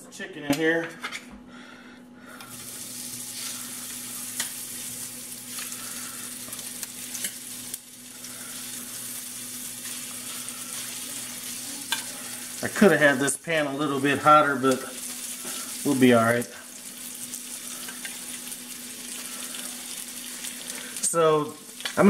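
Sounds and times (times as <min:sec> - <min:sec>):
chicken sizzling in hot oil: 0:02.4 - 0:22.0
tongs clicking against pan: 0:11.9 - 0:12.1.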